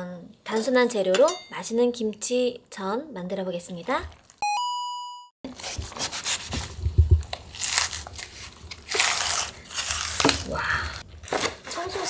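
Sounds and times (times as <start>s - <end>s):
knife cutting wet crunchy cabbage: 5.5s - 12.0s.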